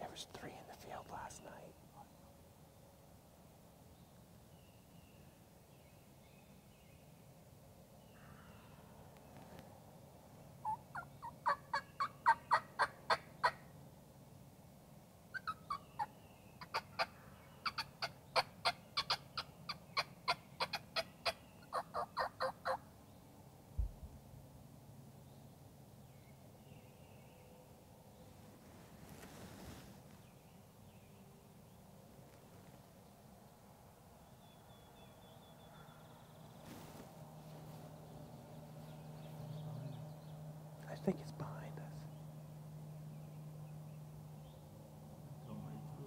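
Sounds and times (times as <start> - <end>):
turkey yelping: 20.0 - 22.8
low thump: 23.8 - 24.2.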